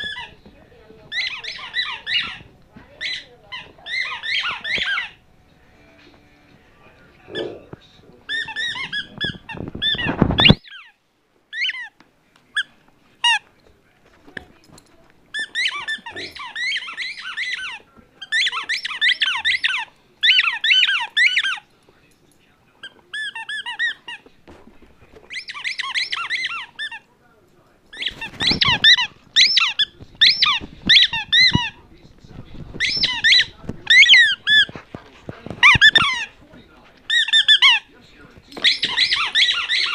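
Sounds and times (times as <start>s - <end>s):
squeaky toy squeaking: 0.0s - 0.4s, 1.1s - 5.2s, 8.3s - 12.0s, 15.3s - 21.6s, 22.8s - 24.2s, 25.3s - 27.1s, 27.9s - 31.8s, 32.8s - 34.8s, 35.5s - 36.4s, 37.1s - 37.9s, 38.5s - 39.9s.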